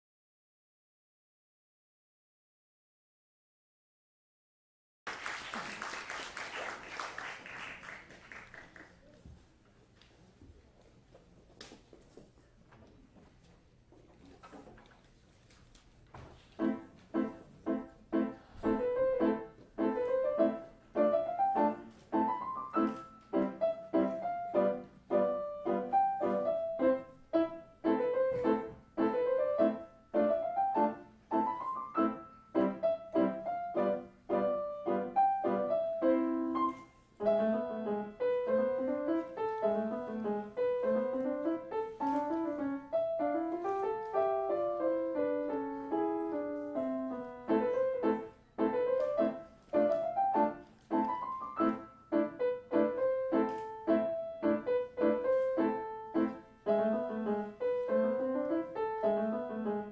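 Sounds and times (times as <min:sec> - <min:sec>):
grand piano playing: 0:16.6 - 0:59.9.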